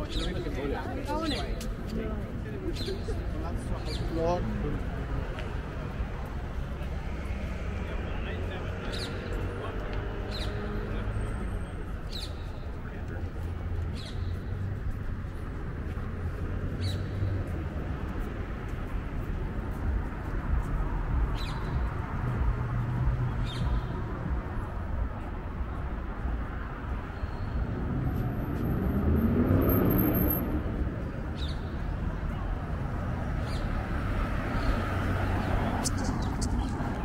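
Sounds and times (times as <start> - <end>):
low traffic rumble: 0.0 - 37.0.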